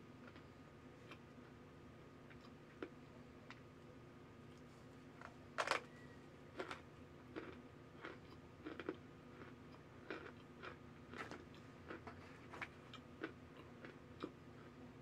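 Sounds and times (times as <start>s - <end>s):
cornstarch chunks crunching: 6.6s - 14.8s.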